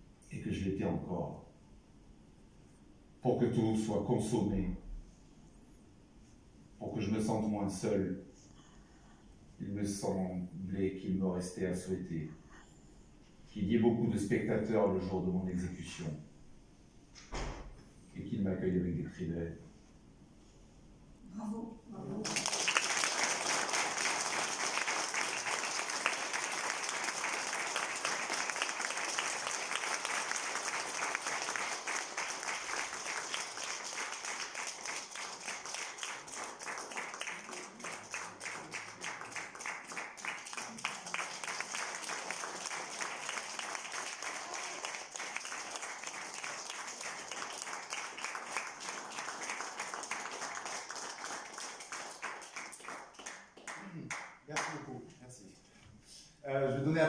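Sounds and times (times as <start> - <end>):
audience applauding: 22.2 - 54.8.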